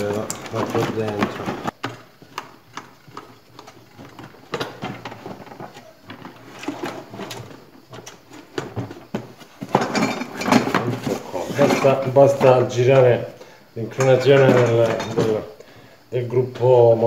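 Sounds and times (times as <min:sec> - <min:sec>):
parts knocking on plastic housing: 0:00.0 - 0:06.4.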